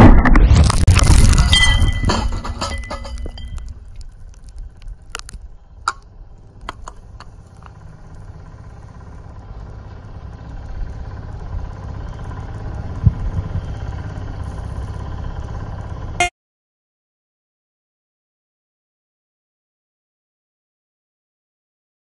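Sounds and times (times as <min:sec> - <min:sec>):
low rumble: 0:00.0 - 0:16.2
metal debris clinking: 0:00.6 - 0:05.3.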